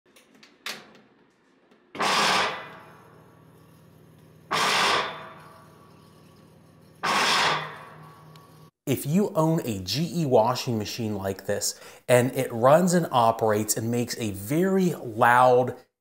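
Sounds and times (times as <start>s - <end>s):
washing machine harsh surges: 2.0s - 2.8s, 4.5s - 5.4s, 7.0s - 8.0s.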